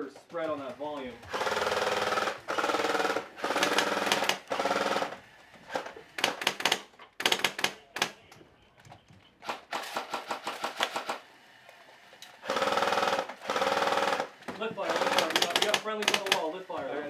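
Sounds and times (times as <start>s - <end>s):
airsoft guns firing bursts: 1.1s - 8.2s, 9.4s - 11.3s, 12.4s - 16.8s.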